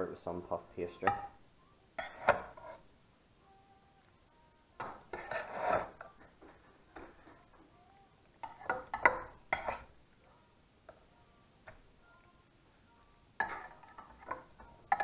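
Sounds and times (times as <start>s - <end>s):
metal spoon scraping a saucepan: 2.0s - 2.8s, 5.1s - 6.1s, 8.4s - 9.9s, 13.4s - 15.0s.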